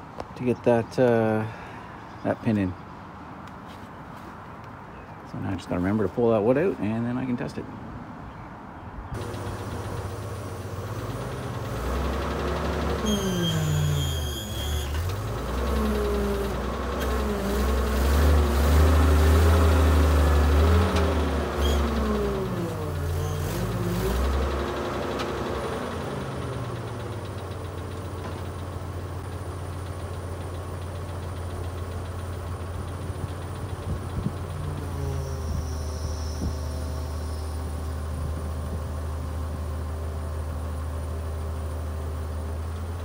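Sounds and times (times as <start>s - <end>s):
forklift engine revving: 9.2s - 40.0s.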